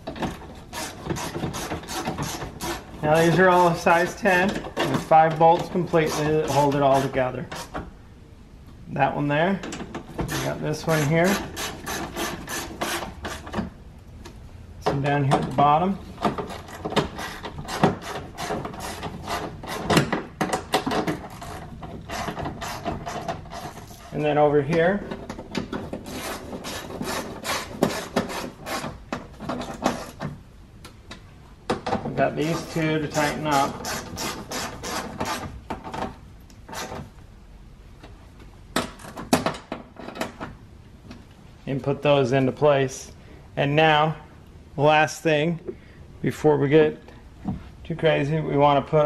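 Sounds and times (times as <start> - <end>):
hand tool clicking and knocking: 0.0 - 3.7, 16.2 - 24.1.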